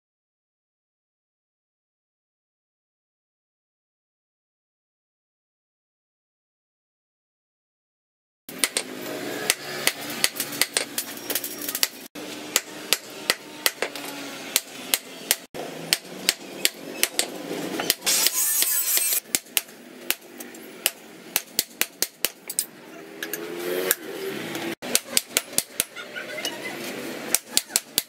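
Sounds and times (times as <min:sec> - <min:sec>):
hammer striking metal on anvil: 0:12.5 - 0:20.2.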